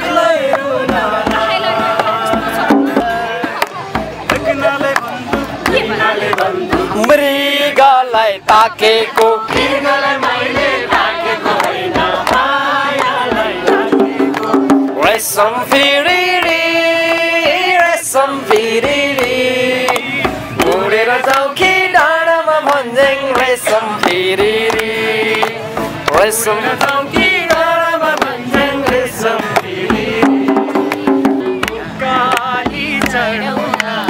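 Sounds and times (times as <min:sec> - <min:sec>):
group singing along: 0:00.0 - 0:34.0
hand drum: 0:00.0 - 0:34.0
man singing: 0:04.3 - 0:09.5, 0:13.3 - 0:30.8, 0:31.4 - 0:34.0.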